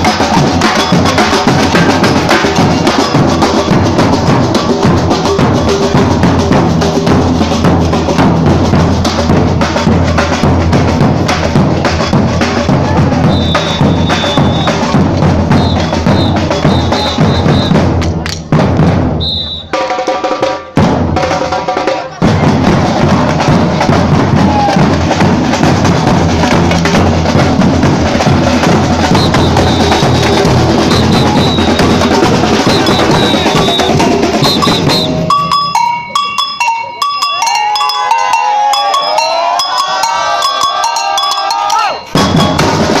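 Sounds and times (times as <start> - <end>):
samba drum ensemble: 0.0 - 36.2, 37.8 - 43.0
ringing bell-like strikes: 34.6 - 42.8.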